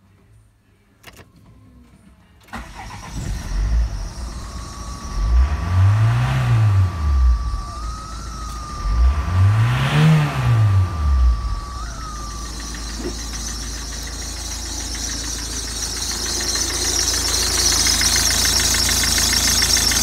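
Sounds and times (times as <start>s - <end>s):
diesel engine starting and revving: 2.5s - 20.0s
steady high whine: 2.7s - 20.0s.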